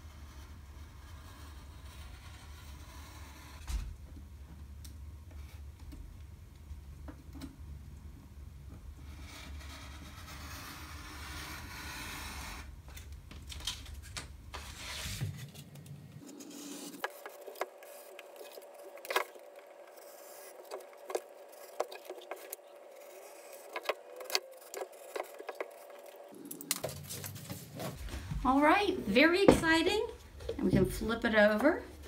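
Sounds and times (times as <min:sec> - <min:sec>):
craft knife cutting paper: 0:14.6 - 0:15.6, 0:16.2 - 0:27.6.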